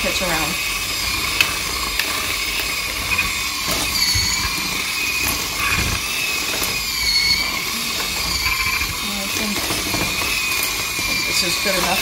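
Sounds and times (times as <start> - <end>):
hand mixer motor whine: 0.0 - 12.0.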